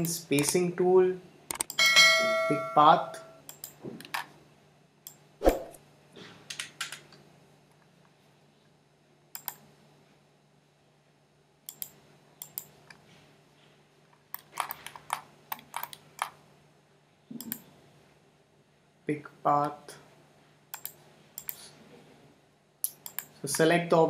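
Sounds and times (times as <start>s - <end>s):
faint low hum: 0.0s - 24.0s
mouse and keyboard clicks: 1.5s - 1.8s, 9.4s - 9.6s, 11.7s - 13.0s, 14.3s - 16.4s, 17.4s - 17.7s, 20.7s - 21.7s, 22.8s - 23.6s.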